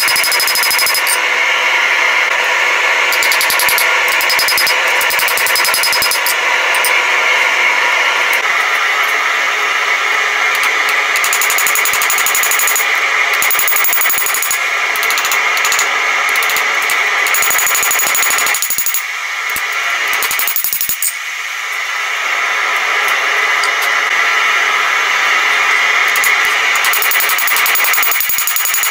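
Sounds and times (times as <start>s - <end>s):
hammer striking metal on anvil: 3.1s - 7.0s.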